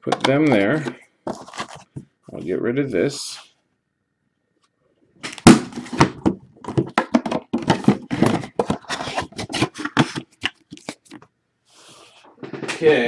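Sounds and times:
box knocks taps and scrapes: 0:05.6 - 0:10.6.

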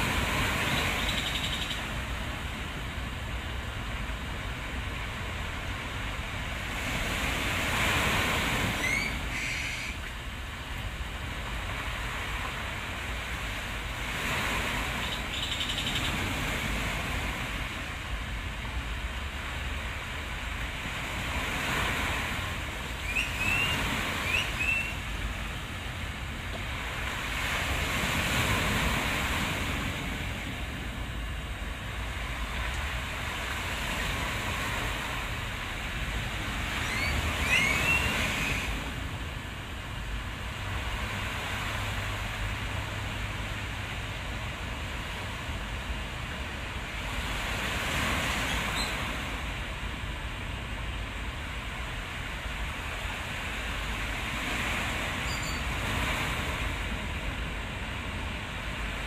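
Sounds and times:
low wind rumble: 0:00.0 - 0:15.4
sea surf washing in: 0:00.0 - 0:59.0.

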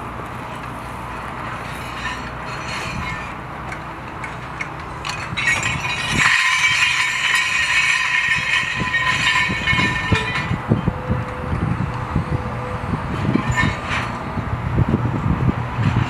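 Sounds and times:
steel pieces clinking and jangling: 0:00.5 - 0:10.6, 0:13.3 - 0:14.2.

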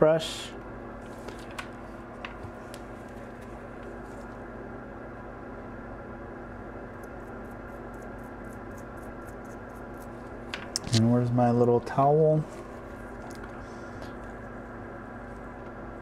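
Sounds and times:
steady electrical hum: 0:00.0 - 0:16.0
toothbrush brushing strokes: 0:07.1 - 0:10.2.

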